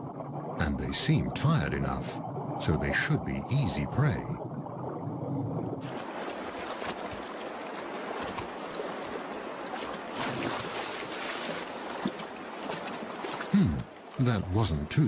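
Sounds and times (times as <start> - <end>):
splashes in water: 5.8 - 14.6
creek rushing over rocks: 5.8 - 14.9.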